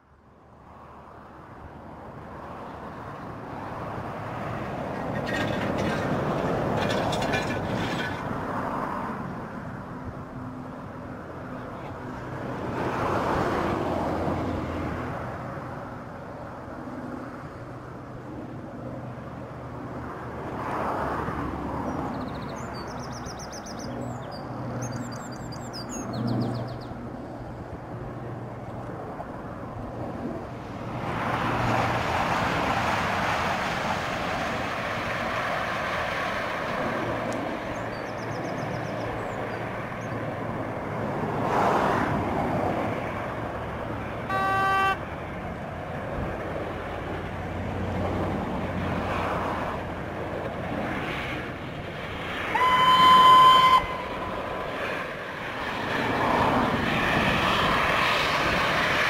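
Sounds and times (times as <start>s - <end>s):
distant steam locomotive rushing: 52.1s - 59.0s.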